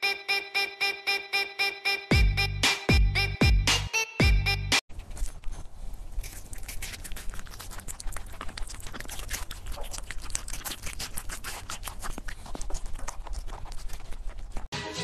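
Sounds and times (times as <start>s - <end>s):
pet chewing watermelon: 5.0s - 14.7s.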